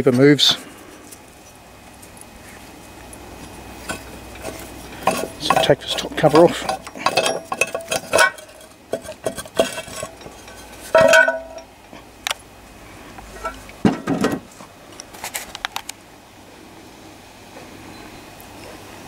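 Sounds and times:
metal clinks and knocks: 0:03.8 - 0:11.8, 0:13.3 - 0:14.5.

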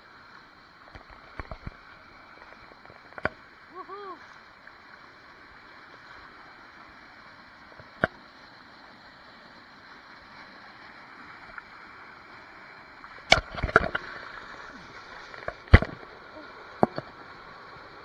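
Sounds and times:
water rushing over rocks: 0:00.1 - 0:06.3, 0:09.8 - 0:18.0.

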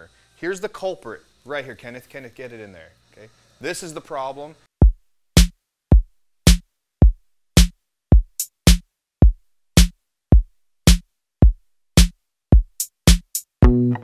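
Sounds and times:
drum machine beat: 0:04.8 - 0:14.0.

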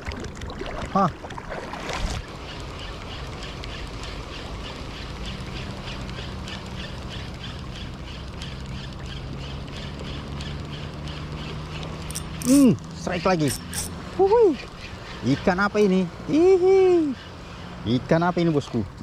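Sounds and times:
water noise: 0:00.0 - 0:19.0
wind: 0:00.0 - 0:19.0
fishing reel ticking: 0:12.0 - 0:13.9.

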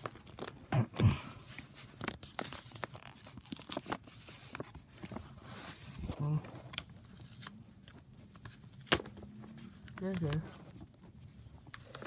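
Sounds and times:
paper envelope tearing: 0:01.5 - 0:09.1.

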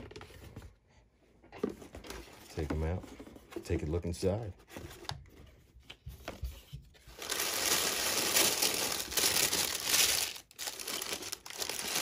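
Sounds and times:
tissue paper crinkling: 0:07.1 - 0:12.0.

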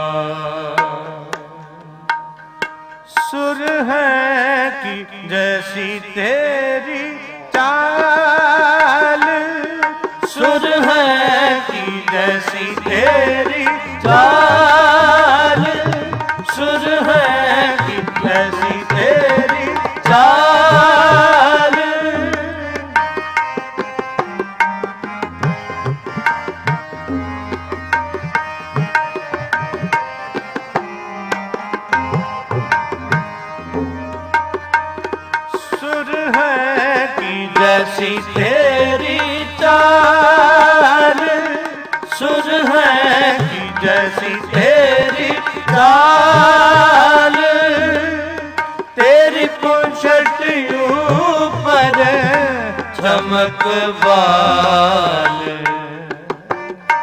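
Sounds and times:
harmonium: 0:00.0 - 0:57.0
tabla drumming: 0:00.2 - 0:06.4, 0:07.0 - 0:57.0
person singing gliding phrases: 0:03.3 - 0:23.1, 0:35.5 - 0:56.4.

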